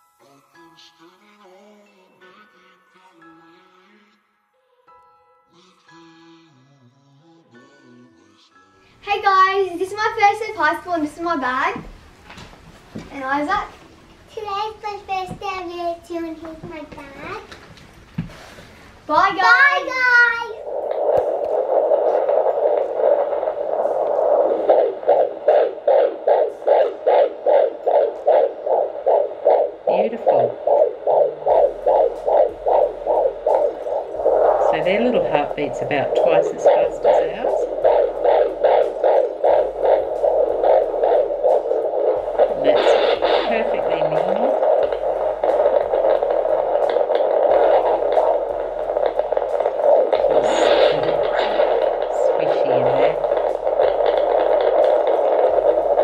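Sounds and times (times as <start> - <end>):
doppler hiss: 7.1 - 17.5, 18.2 - 56.0
fetal heartbeat pulsing: 9.1 - 13.8, 19.0 - 56.0.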